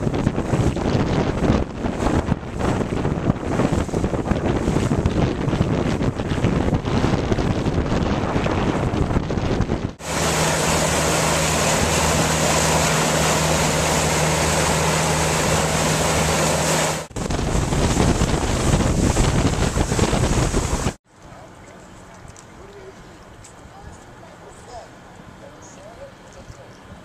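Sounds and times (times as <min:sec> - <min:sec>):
water rushing past hull: 0:00.0 - 0:21.0
wind buffeting microphone: 0:00.0 - 0:21.0
outboard motor running: 0:00.0 - 0:23.2.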